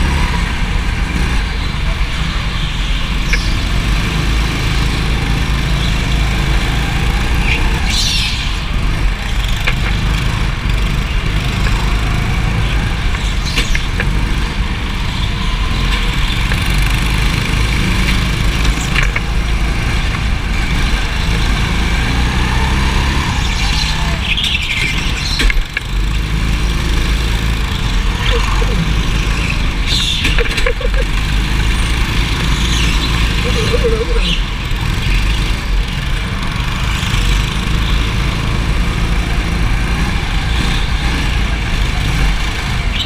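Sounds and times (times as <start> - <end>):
go-kart engine running hard: 0.0 - 43.0
tyres squealing: 15.0 - 34.9.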